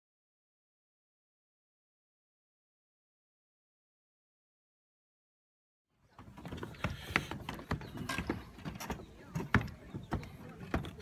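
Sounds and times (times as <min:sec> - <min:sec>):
footsteps walking: 0:06.1 - 0:11.0.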